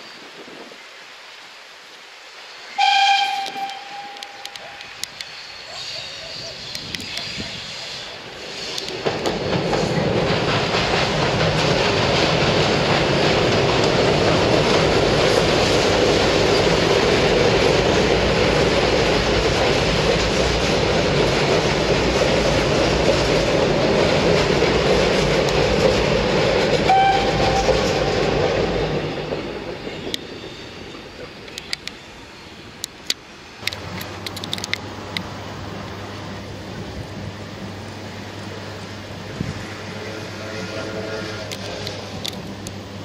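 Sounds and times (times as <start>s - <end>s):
high-pitched squeal: 2.7s - 9.0s
train wheels rumbling on bridge: 2.8s - 43.0s.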